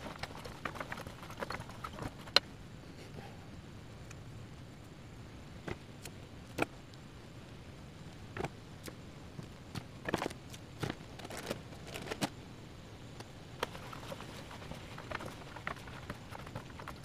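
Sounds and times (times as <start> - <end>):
food packaging handled: 10.0 - 12.3.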